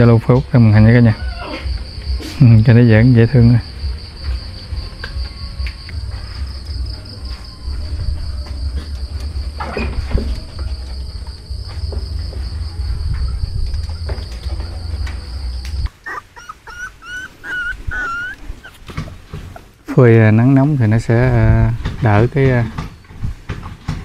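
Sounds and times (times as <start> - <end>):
crickets chirping: 0.0 - 24.0
low hum: 6.0 - 15.9
puppies whimpering: 13.9 - 19.8.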